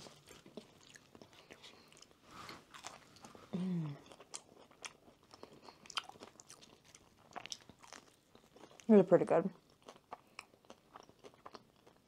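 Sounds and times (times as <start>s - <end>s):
chewing and crunching: 0.0s - 12.0s
person humming: 3.5s - 4.0s.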